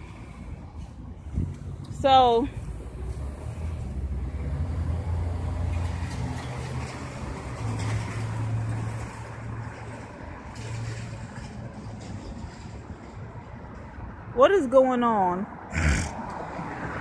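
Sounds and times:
traffic noise: 0:00.0 - 0:17.0.

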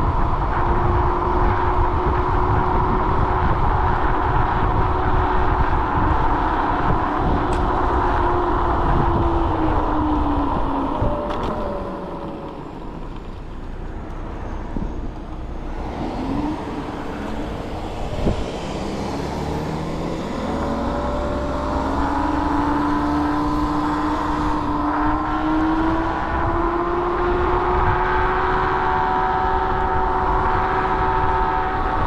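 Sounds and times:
vehicle motor speeding up: 0:00.0 - 0:13.4, 0:15.7 - 0:32.0
road and wind noise: 0:00.0 - 0:32.0.

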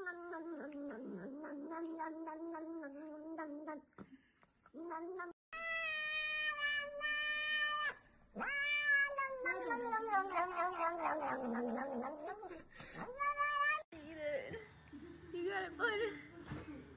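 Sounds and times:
small clicks of eating: 0:00.5 - 0:01.2, 0:03.9 - 0:05.4
cat meowing: 0:04.8 - 0:13.9.

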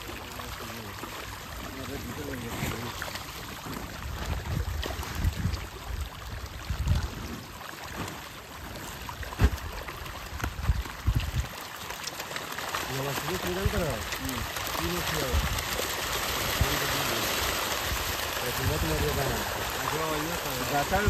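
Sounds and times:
fish thrashing and splashing: 0:00.0 - 0:21.0.

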